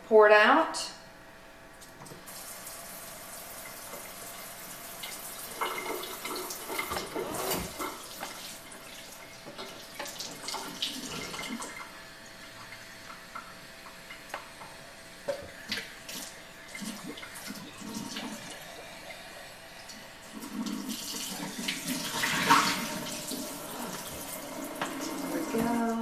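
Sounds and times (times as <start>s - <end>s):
water splashing into metal sink: 3.4s - 11.9s.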